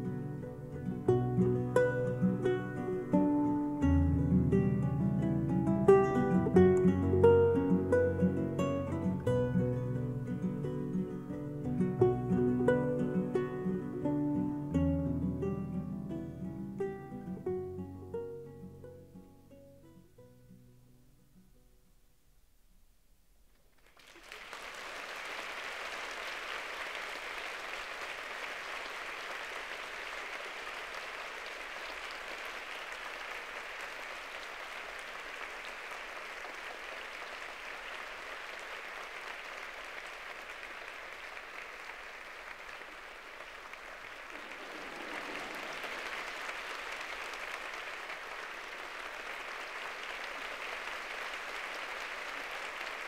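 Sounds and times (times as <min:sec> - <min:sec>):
audience applauding: 0:23.8 - 0:53.0.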